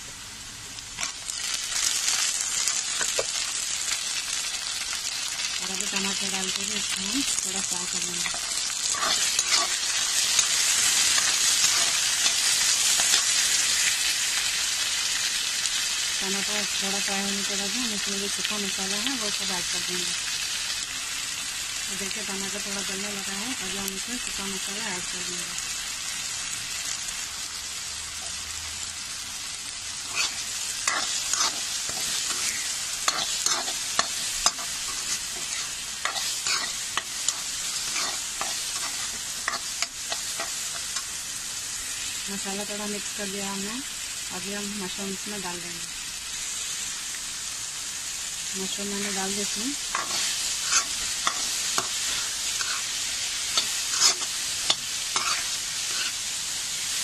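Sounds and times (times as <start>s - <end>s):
vegetables sizzling in oil: 0.0s - 57.0s
metal spoon scraping: 8.2s - 13.2s, 30.0s - 41.1s, 49.9s - 56.2s.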